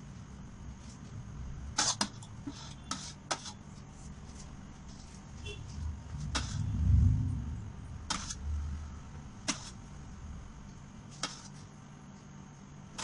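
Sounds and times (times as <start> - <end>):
low rumbling handling noise: 4.2 - 11.0.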